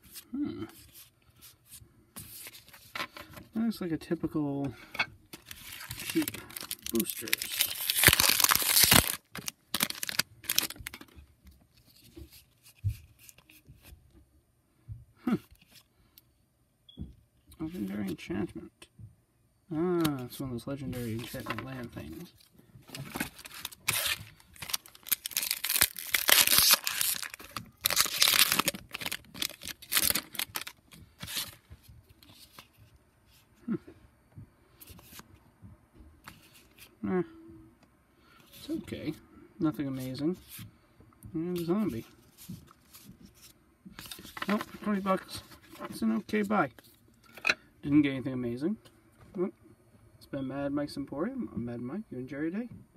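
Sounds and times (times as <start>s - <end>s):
trading cards rustling: 5.3s - 11.1s, 20.9s - 32.8s, 41.5s - 46.9s
foil wrapper tearing and crinkling: 5.4s - 11.0s, 23.0s - 31.6s.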